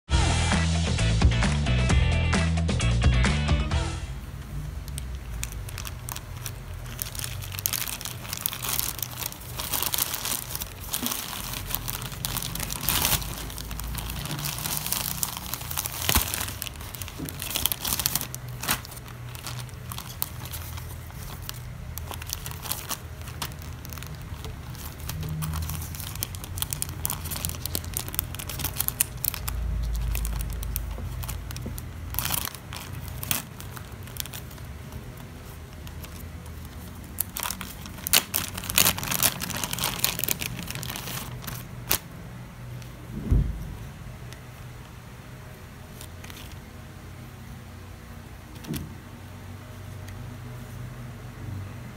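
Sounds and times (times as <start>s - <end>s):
plastic packets rustling: 4.3s - 43.0s, 45.8s - 46.8s
plastic mailer pouch crinkling: 4.4s - 42.2s, 45.8s - 46.7s.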